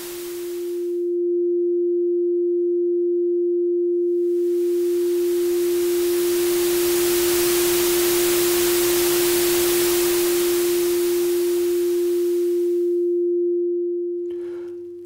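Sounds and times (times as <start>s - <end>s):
hissing white noise: 0.0s - 1.0s, 4.4s - 13.0s
pure sine tone: 0.0s - 15.0s.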